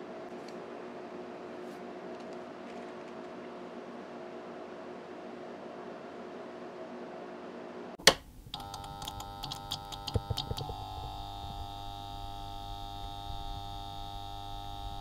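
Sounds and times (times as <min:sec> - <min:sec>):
hiss and hum: 0:03.8 - 0:15.0.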